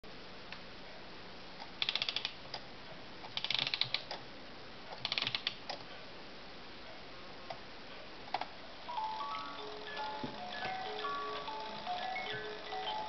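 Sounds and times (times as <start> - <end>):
clockwork mechanism ratcheting: 1.8 - 2.4, 3.3 - 4.1, 9.0 - 13.0.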